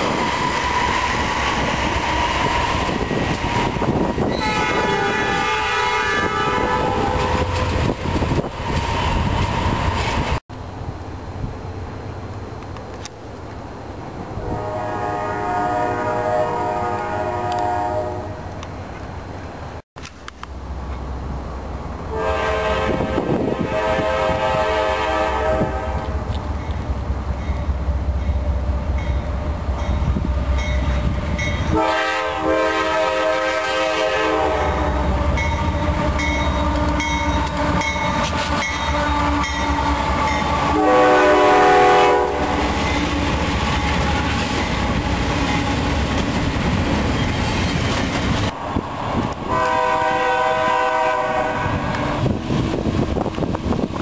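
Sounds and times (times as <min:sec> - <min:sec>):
freight train rumble: 0:00.0 - 0:54.0
locomotive horn blasts: 0:02.4 - 0:07.8, 0:14.4 - 0:18.5, 0:22.1 - 0:26.3, 0:31.4 - 0:42.9, 0:49.5 - 0:52.3.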